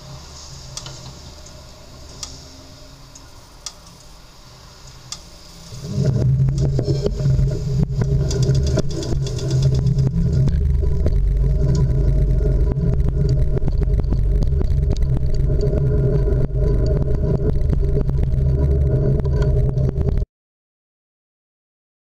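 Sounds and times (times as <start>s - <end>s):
heavy low rumble: 0.0s - 20.3s.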